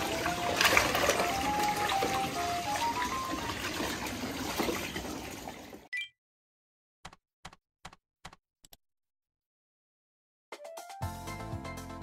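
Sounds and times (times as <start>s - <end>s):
background music: 0.0s - 3.7s, 10.5s - 12.0s
water splashing in pool: 0.0s - 5.9s.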